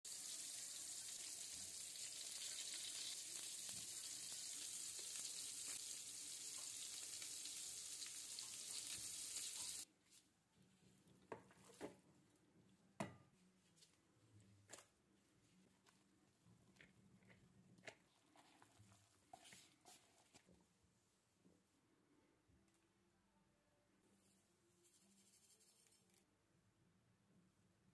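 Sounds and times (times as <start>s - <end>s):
cutlets sizzling in a pan: 0.1s - 9.9s.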